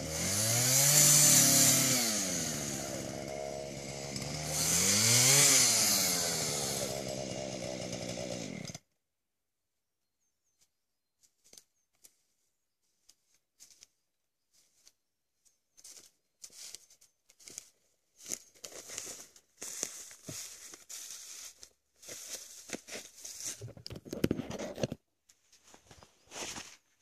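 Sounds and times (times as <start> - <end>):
footsteps in dry leaves: 11.3 - 23.7, 25.6 - 26.9.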